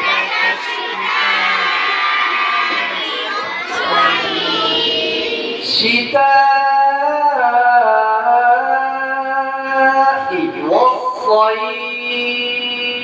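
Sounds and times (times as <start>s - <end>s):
several voices chanting: 0.0s - 6.0s
man reciting melodically: 5.6s - 13.0s.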